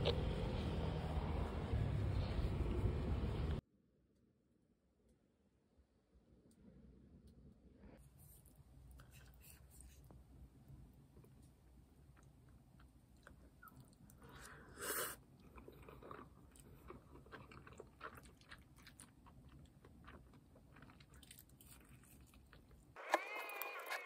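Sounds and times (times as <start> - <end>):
faint low hum: 0.0 - 23.8
quiet chewing: 8.0 - 24.0.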